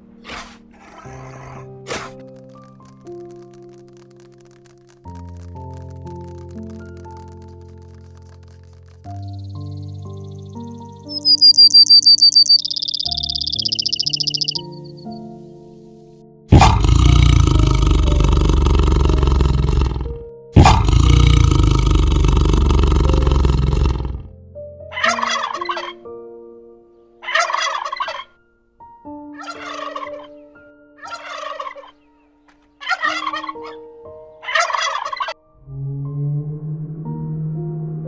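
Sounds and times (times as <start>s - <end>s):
soft slow music: 0.0s - 38.0s
rough animal calls: 0.2s - 3.8s, 6.0s - 15.2s, 16.5s - 24.3s, 24.9s - 26.0s, 29.4s - 30.4s, 31.0s - 32.0s, 32.8s - 37.3s.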